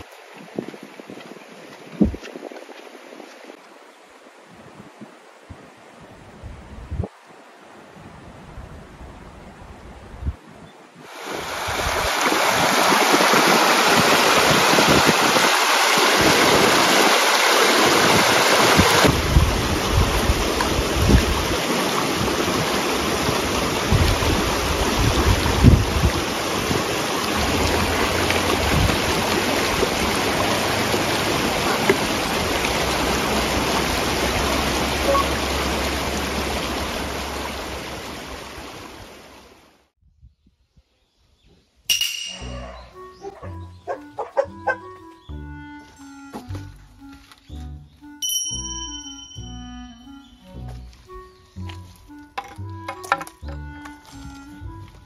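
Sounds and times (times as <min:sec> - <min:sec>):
river water rushing: 0:07.1 - 0:09.7, 0:11.0 - 0:39.8.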